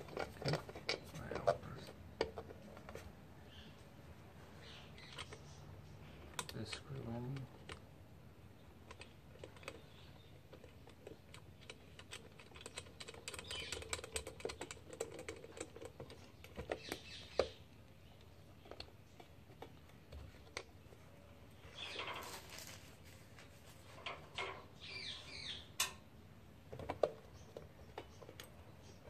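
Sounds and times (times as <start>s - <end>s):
plastic parts clicking and rattling: 0.0s - 3.0s, 8.8s - 17.6s.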